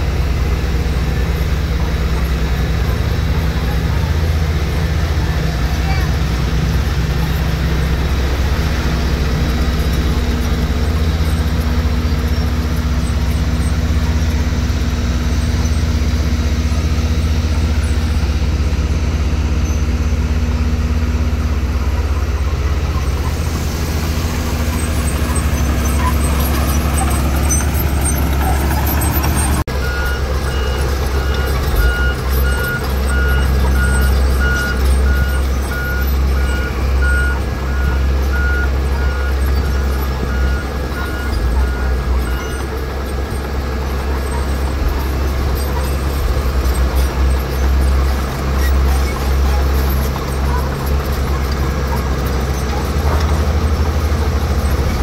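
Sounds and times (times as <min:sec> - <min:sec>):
diesel engine running: 0:00.0 - 0:55.0
reversing alarm beeping: 0:24.2 - 0:42.7.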